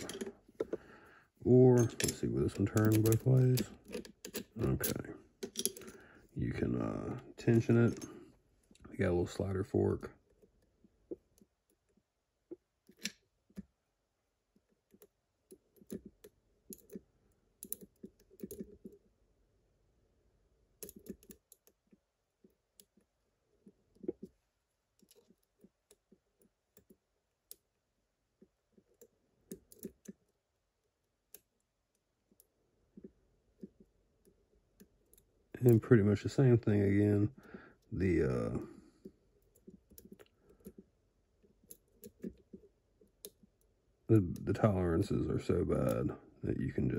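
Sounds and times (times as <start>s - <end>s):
lock pick clicking and scraping: 1.8s - 6.0s, 12.8s - 13.7s, 14.6s - 19.0s, 20.8s - 21.8s.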